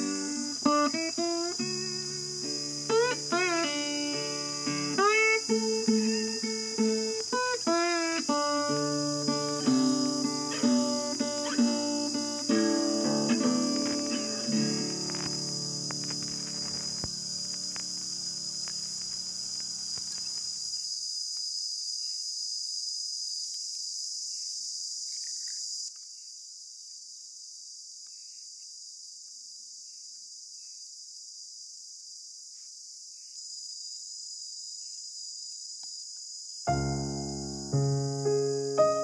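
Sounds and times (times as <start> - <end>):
light guitar music: 0.0 - 18.0, 36.7 - 39.0
insects trilling: 0.0 - 39.0.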